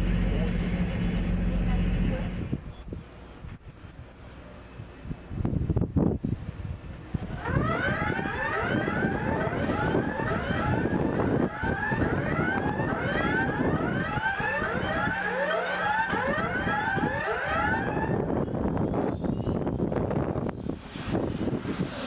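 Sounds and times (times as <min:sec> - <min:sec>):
alert siren yelping: 0:07.4 - 0:18.7.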